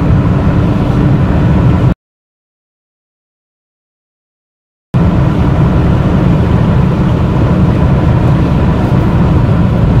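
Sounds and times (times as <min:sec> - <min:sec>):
car engine at high speed: 0:00.0 - 0:02.0, 0:05.0 - 0:10.0
wind and road noise: 0:00.0 - 0:02.0, 0:05.0 - 0:10.0.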